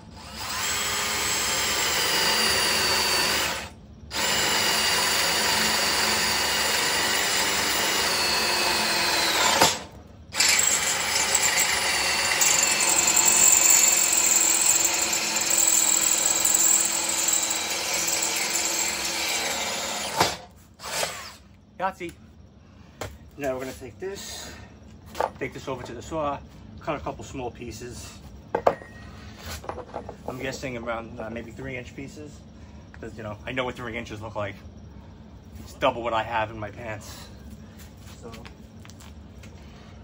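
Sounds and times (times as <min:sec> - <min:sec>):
drill boring into steel: 0:00.0 - 0:21.4
cordless drill whining: 0:00.1 - 0:21.4.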